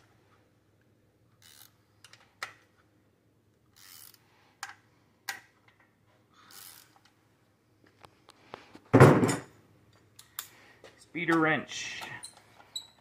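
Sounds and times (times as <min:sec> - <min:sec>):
ratchet wrench clicking: 0:01.4 - 0:02.2, 0:03.7 - 0:04.2, 0:06.5 - 0:07.0.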